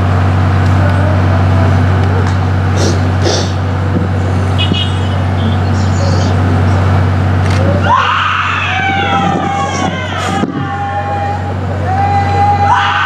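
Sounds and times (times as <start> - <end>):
low hum: 0.0 - 11.8
sound system noise: 0.0 - 13.0
woman wailing: 7.8 - 11.4.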